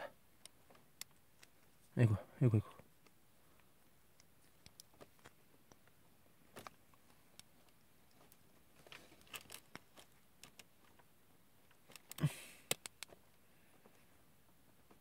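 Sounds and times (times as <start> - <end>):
plastic parts clicking: 6.6 - 11.0, 11.7 - 13.2.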